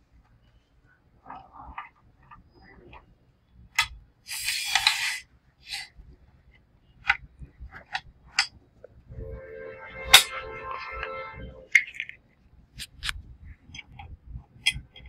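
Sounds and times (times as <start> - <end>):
metal scraping: 9.1 - 12.2.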